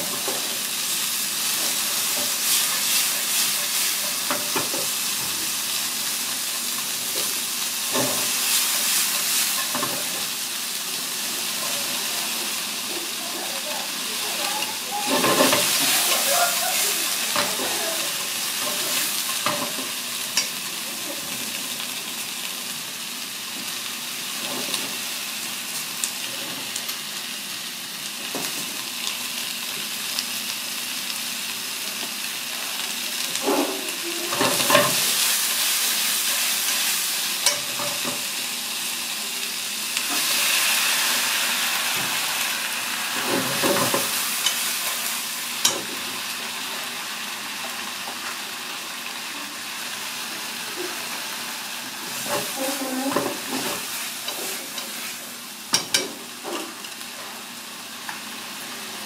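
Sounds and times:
vegetables sizzling in frying pan: 0.0 - 59.0
utensils clicking against pan: 14.4 - 16.3, 37.4 - 38.2, 55.7 - 56.9.

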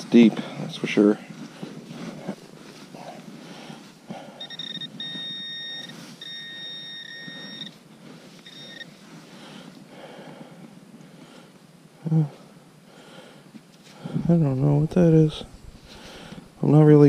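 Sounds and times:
hands rustling in soil: 0.0 - 11.7, 13.4 - 16.6
pinpointer electronic tone: 4.3 - 9.0.

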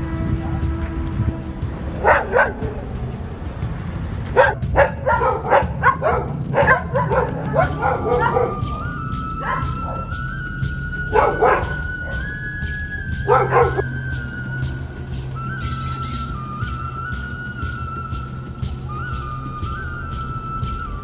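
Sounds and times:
steady low rumble: 0.0 - 21.0
dogs barking: 2.0 - 2.8, 4.2 - 10.2, 11.1 - 12.4, 13.2 - 14.0.

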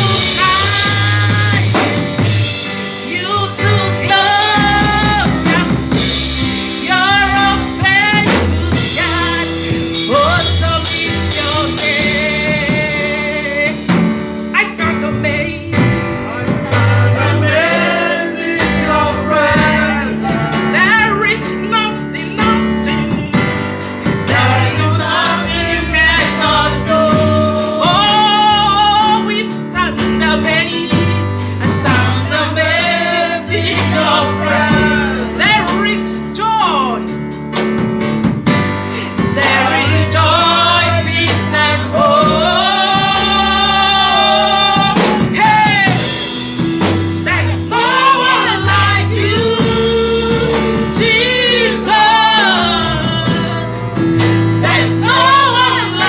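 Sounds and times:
backing track with drums: 0.0 - 56.0
woman singing into microphone: 3.0 - 6.0, 47.3 - 53.8.

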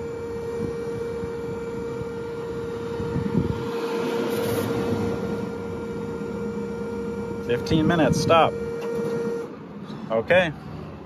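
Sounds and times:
electrical charger hum: 0.0 - 9.7
short rush of noise: 3.6 - 5.5.

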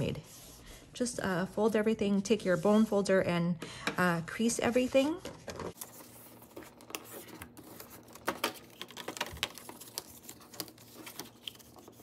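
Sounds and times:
paper rustling and scraping: 4.6 - 12.0.

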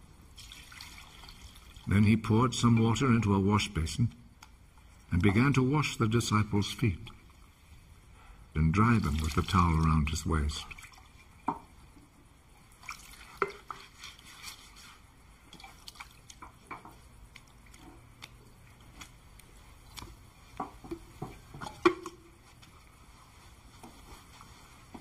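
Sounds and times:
water dripping and splashing in basin: 0.3 - 1.9, 8.8 - 22.9.

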